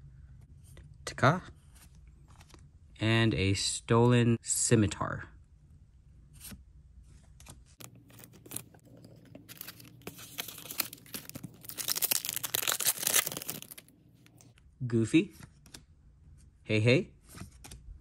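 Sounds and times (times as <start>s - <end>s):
plastic card sleeve rustling: 7.4s - 14.6s
foil wrapper crinkling and tearing: 7.8s - 13.9s.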